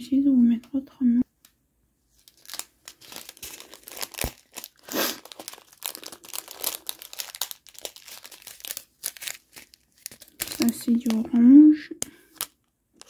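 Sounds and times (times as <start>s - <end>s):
plastic bags crinkling: 2.1s - 11.6s.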